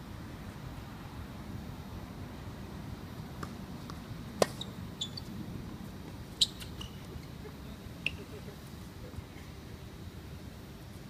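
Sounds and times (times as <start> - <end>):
low background hum: 0.0 - 11.0
tennis ball struck by rackets: 3.4 - 4.7.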